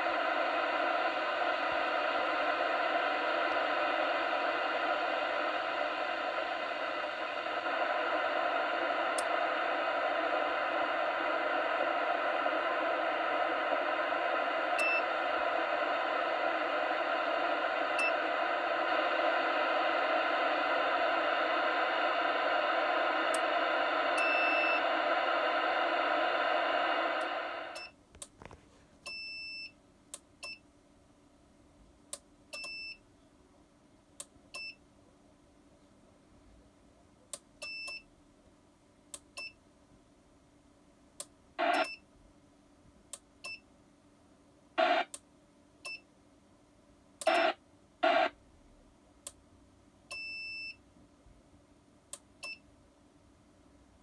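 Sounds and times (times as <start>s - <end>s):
loud radio hiss: 0.0s - 27.9s, 41.6s - 41.9s, 44.8s - 45.2s, 47.2s - 48.4s.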